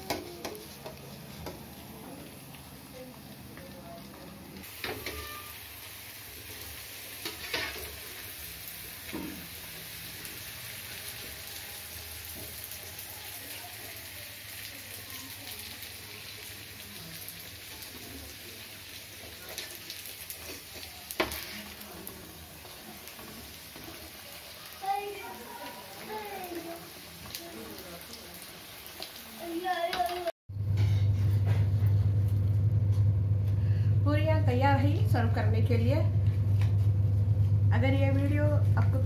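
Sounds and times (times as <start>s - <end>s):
oil sizzling and crackling: 0.0s - 30.4s.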